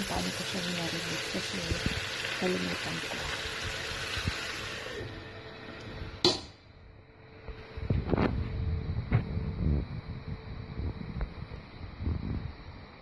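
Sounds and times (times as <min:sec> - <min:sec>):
meat sizzling in a frying pan: 0:00.0 - 0:04.8.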